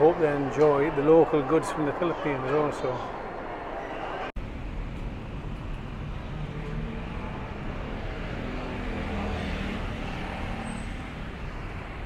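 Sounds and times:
cars and vans driving past: 0:04.4 - 0:12.0
engine note rising: 0:05.2 - 0:11.4.

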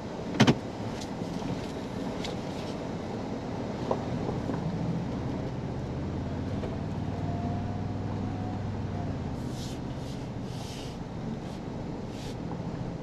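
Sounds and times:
truck engine droning: 0:00.0 - 0:13.0
brief hisses: 0:09.4 - 0:11.0.

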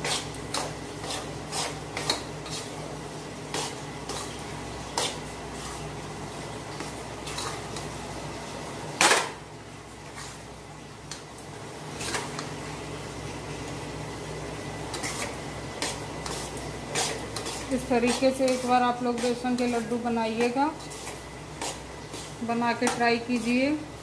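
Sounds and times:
spatula scraping metal pan: 0:00.0 - 0:02.8, 0:14.9 - 0:23.6.

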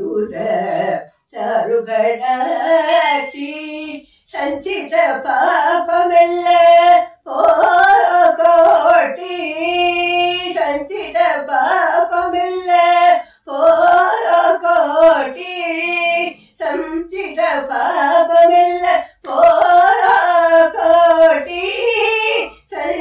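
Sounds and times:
woman singing classical song: 0:00.0 - 0:23.0.

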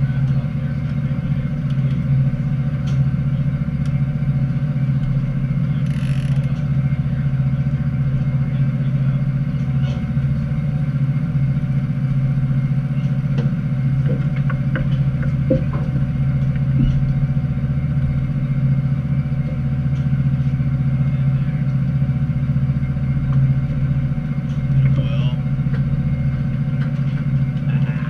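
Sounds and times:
boat engine droning: 0:00.0 - 0:28.0.

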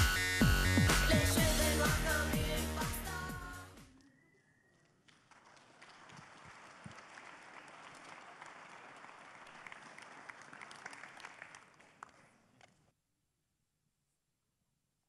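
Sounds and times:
audience applauding: 0:04.8 - 0:12.7.

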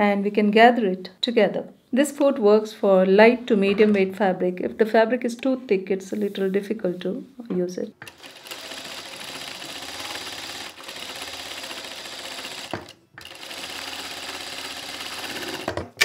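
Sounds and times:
sewing machine running: 0:08.0 - 0:15.8.

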